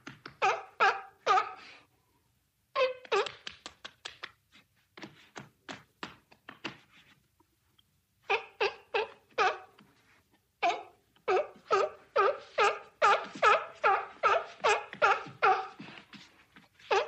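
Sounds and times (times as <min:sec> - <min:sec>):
seal barking: 0:00.4 - 0:01.8, 0:08.3 - 0:09.8, 0:10.6 - 0:15.9.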